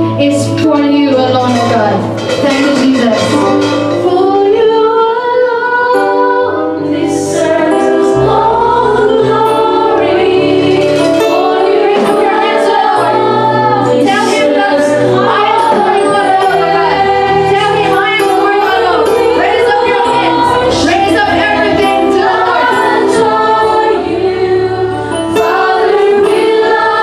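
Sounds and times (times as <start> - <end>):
live band playing: 0.0 - 27.0
woman singing gospel song: 11.2 - 24.7.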